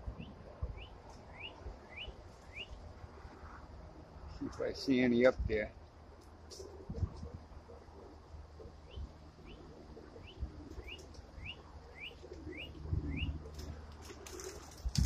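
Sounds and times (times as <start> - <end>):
bird chirping: 0.2 - 2.8, 8.6 - 13.5.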